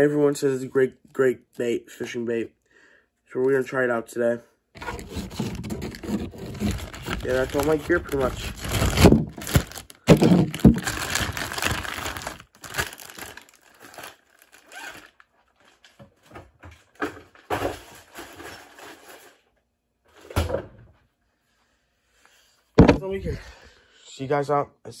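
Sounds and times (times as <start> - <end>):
faint crinkling and rustling: 4.8 - 20.2
phone handling rustling and knocking: 22.8 - 23.2
short thump: 22.8 - 23.4.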